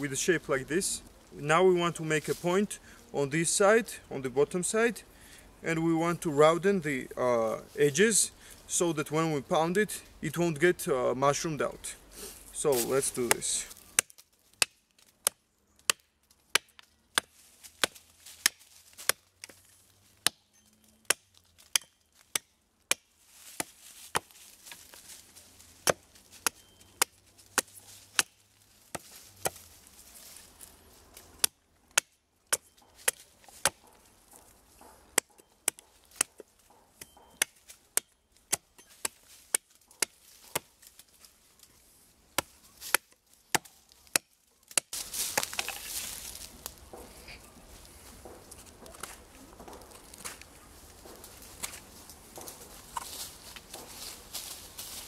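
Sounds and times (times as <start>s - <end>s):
hatchet chopping wood: 13.2s - 19.6s, 20.2s - 24.8s, 25.8s - 29.6s, 31.4s - 41.0s, 42.4s - 45.9s.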